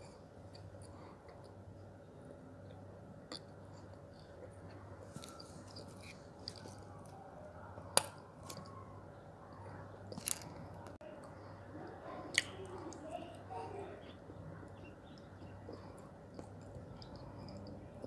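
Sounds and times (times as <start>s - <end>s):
person chewing wet clay: 2.6s - 7.2s, 10.0s - 11.4s, 14.0s - 18.0s.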